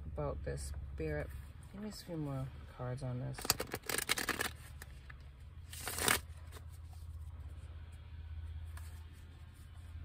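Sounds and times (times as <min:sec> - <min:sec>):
cards being shuffled: 0:03.4 - 0:05.0, 0:05.7 - 0:07.3.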